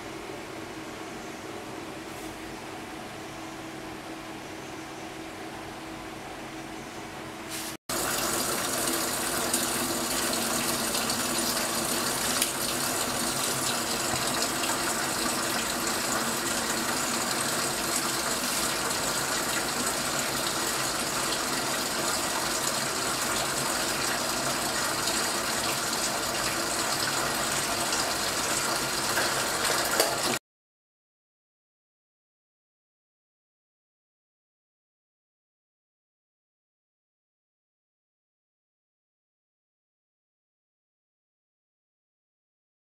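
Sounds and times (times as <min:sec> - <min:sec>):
water gushing into washing machine: 0:07.9 - 0:30.4.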